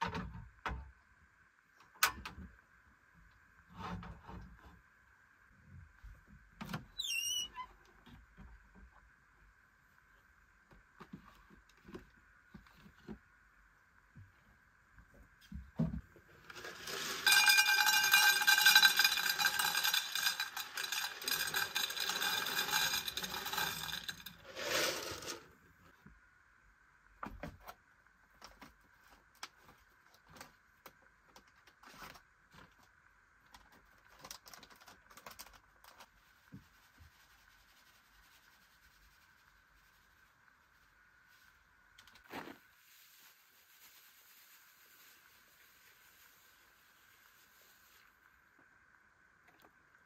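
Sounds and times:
metal clattering and scraping: 16.5s - 25.5s.

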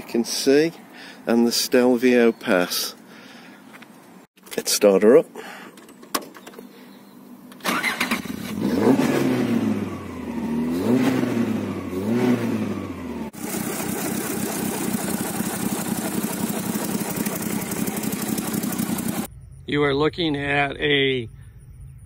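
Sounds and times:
engine cranking: 7.6s - 9.0s, 13.3s - 19.3s
car engine revving and idling: 8.2s - 19.3s.

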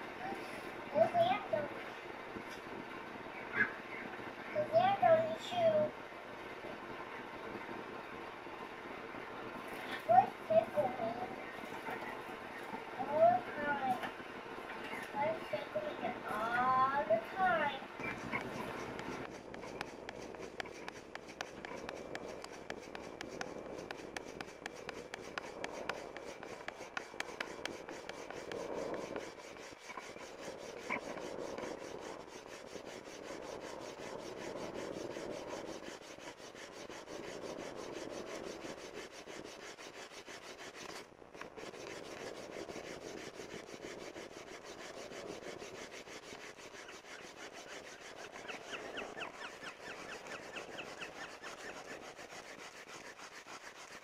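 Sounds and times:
bamboo scraping on bamboo: 14.7s - 54.0s.

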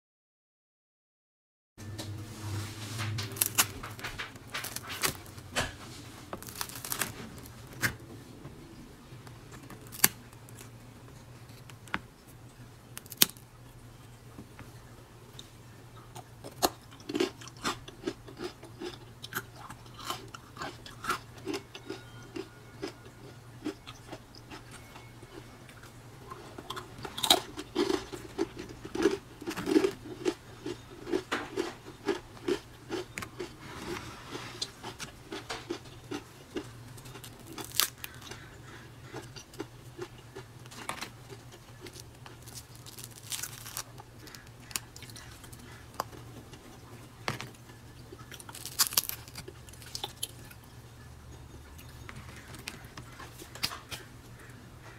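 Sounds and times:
crackers snapping and crumbling: 3.0s - 8.0s, 9.5s - 10.7s, 13.0s - 13.5s, 26.6s - 33.5s, 34.6s - 46.6s, 47.3s - 50.6s.

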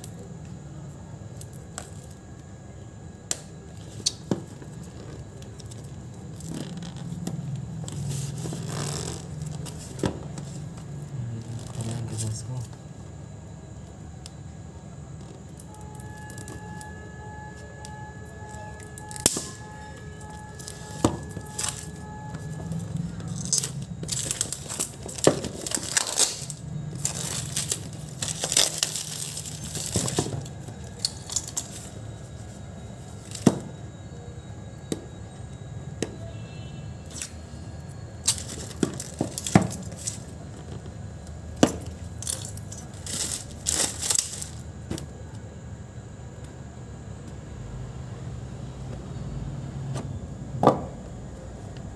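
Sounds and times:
steady low hum: 0.0s - 51.9s
shrink wrap crinkling and tearing: 3.5s - 12.7s, 17.6s - 33.4s, 38.2s - 40.4s, 41.9s - 44.7s.

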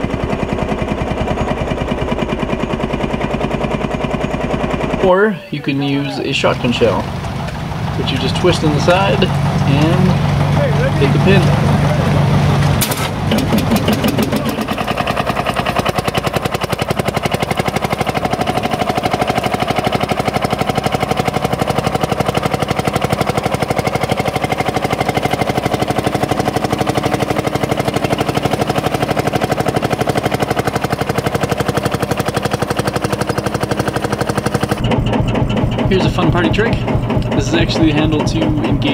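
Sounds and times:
diesel tractor engine chugging: 0.0s - 38.9s
starting cartridge bang: 12.6s - 38.9s.

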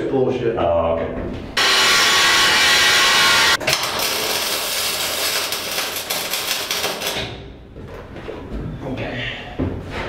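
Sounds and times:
angle grinder on steel: 1.6s - 7.2s
welder crackling and sputtering: 1.6s - 7.4s.

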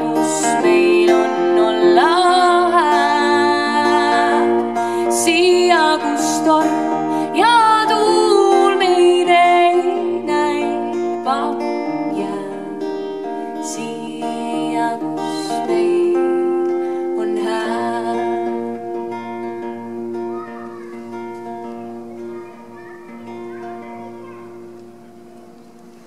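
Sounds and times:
woman singing long notes: 0.0s - 19.2s
acoustic guitar strummed and picked: 0.0s - 26.0s.

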